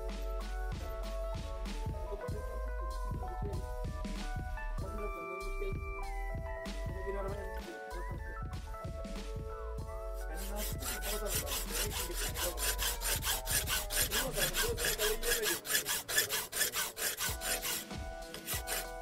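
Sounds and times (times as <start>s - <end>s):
hand file scraping steel: 10.2s - 19.0s.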